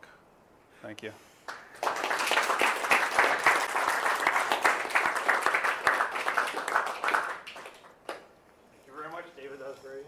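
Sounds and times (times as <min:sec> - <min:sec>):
audience applauding: 0:01.5 - 0:08.3.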